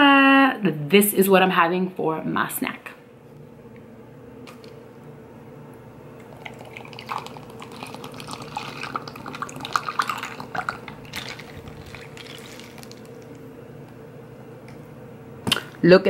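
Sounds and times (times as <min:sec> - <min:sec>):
ice clicking: 0:06.2 - 0:13.4
liquid pouring and gurgling: 0:06.2 - 0:13.4.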